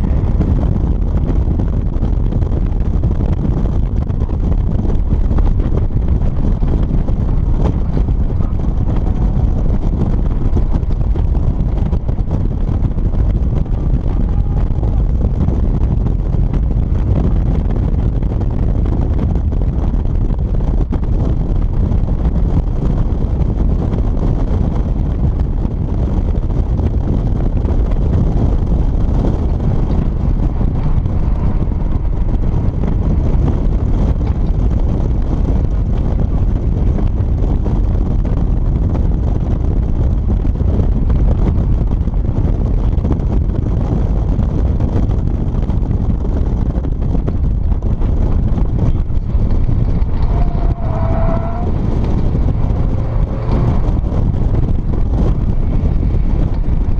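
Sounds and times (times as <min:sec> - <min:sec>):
car engine and tyre noise: 0:00.0 - 0:56.9
wind buffeting microphone: 0:00.0 - 0:56.9.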